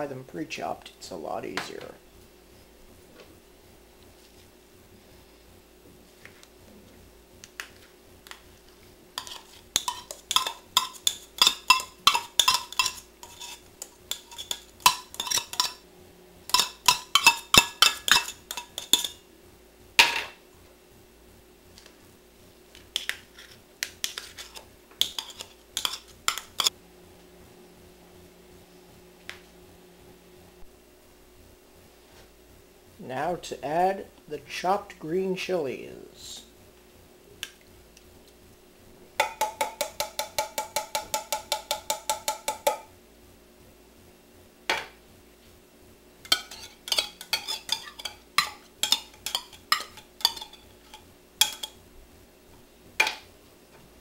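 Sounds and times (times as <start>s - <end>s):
metal spoon scraping tin can: 9.2s - 15.8s, 16.5s - 19.2s, 23.0s - 26.7s, 46.3s - 48.2s.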